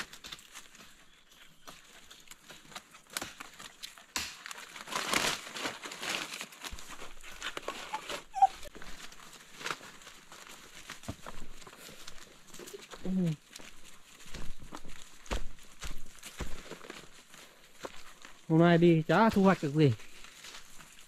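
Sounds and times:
leaves rustling and crackling: 0.0s - 21.0s.

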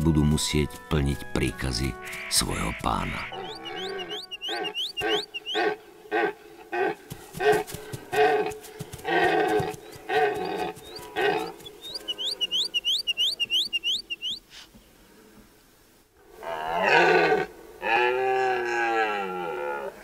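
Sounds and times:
deer calling: 1.8s - 14.7s
high rising chirps: 3.3s - 5.7s, 10.4s - 14.4s.

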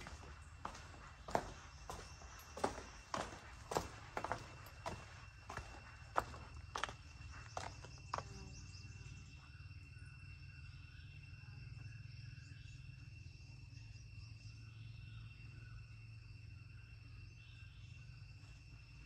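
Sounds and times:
footsteps: 0.0s - 8.3s
insects calling high-pitched: 0.0s - 19.0s
low outdoor hum: 0.0s - 19.0s.

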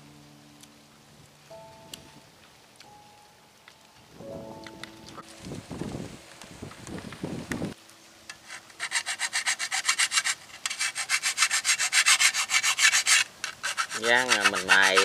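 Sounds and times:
shovel blade rasping: 8.3s - 15.0s.

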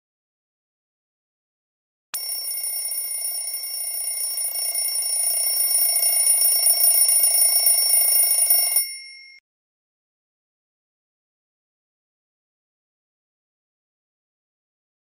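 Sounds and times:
bell ringing with fast rattle: 2.2s - 9.4s.

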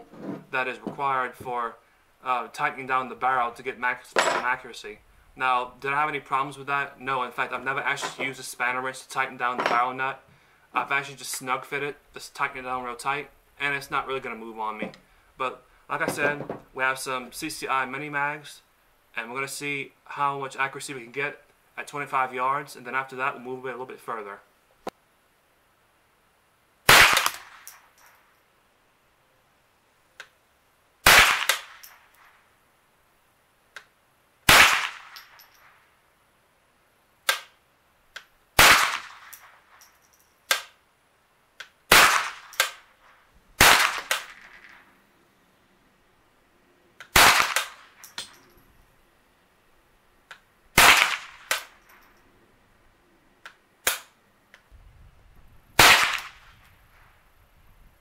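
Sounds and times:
rifle shots cracking: 26.9s - 27.8s, 31.0s - 32.0s, 34.5s - 35.4s, 38.6s - 39.6s, 41.9s - 42.9s, 43.6s - 44.8s, 47.1s - 48.2s, 50.8s - 51.9s, 55.8s - 56.6s.

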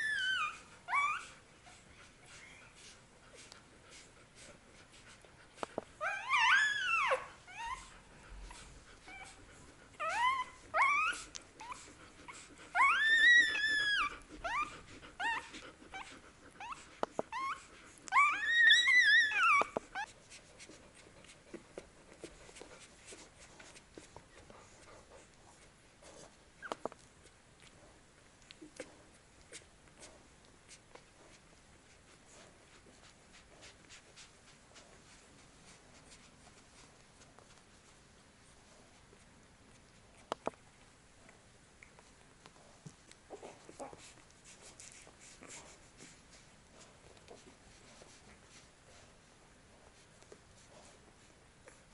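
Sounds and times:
puppies squealing and whimpering: 0.0s - 2.6s, 6.0s - 9.4s, 10.0s - 20.1s.

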